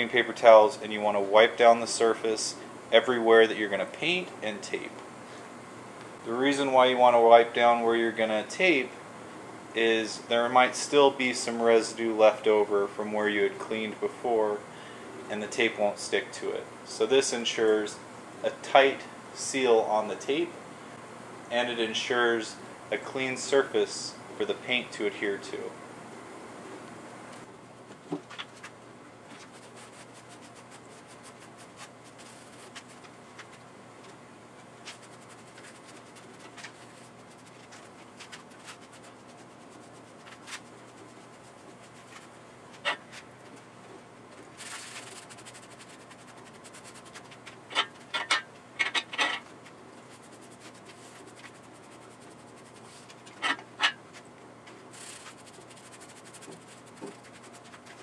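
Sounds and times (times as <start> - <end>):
steady low hum: 0.0 - 58.0
paper towel rubbing metal: 29.3 - 33.6, 34.8 - 43.5, 44.6 - 48.1, 49.7 - 53.9, 54.9 - 58.0.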